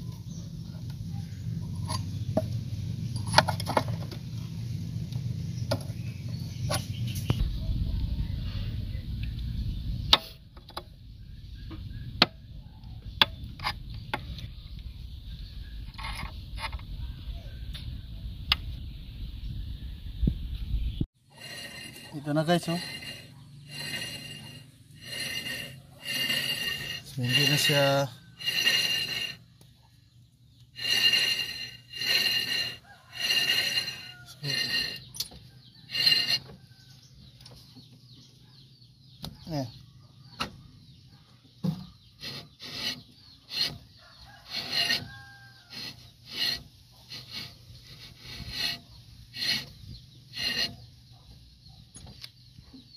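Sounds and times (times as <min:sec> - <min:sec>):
brake disc whirring rasps: 0:21.3 - 0:29.4, 0:30.8 - 0:35.3, 0:35.9 - 0:36.6, 0:42.2 - 0:50.8.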